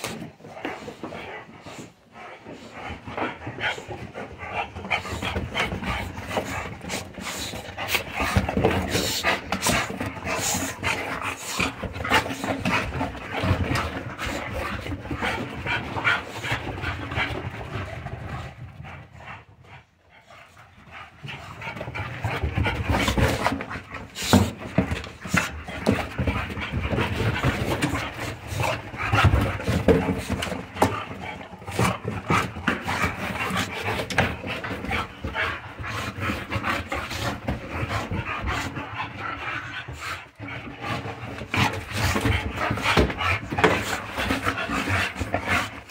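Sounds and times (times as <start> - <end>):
dogs scuffling: 0.0 - 19.1, 20.6 - 45.9
dogs panting: 0.0 - 45.9.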